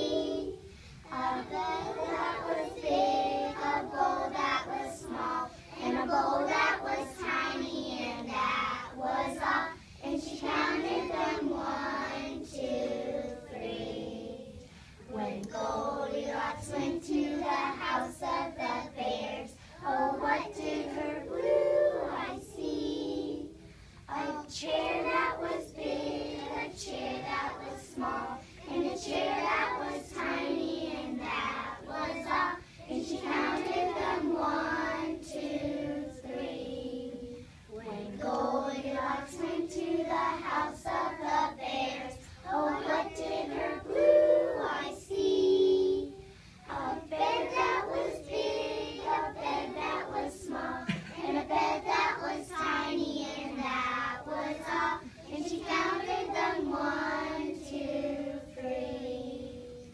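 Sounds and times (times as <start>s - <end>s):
children singing: 0.0s - 59.9s.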